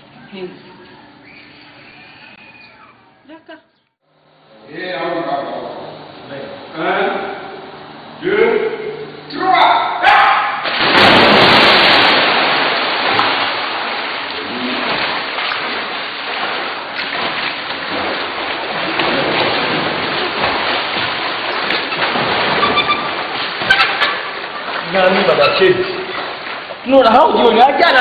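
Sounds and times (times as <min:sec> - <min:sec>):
people jumping into pool splash: 0:10.4 - 0:27.2
swimming splashes: 0:10.5 - 0:28.0.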